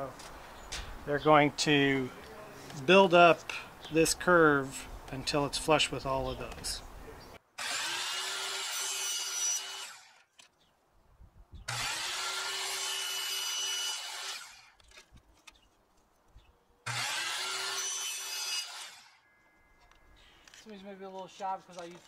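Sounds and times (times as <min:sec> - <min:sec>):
miter saw cutting wood: 0:07.6 - 0:10.3, 0:11.7 - 0:15.0, 0:16.9 - 0:19.2.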